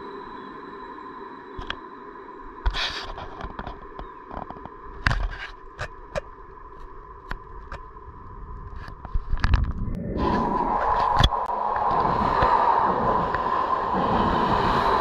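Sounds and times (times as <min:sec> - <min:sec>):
electric train whine: 0:00.0 - 0:08.1
sharp clicks and knocks: 0:02.6 - 0:06.3.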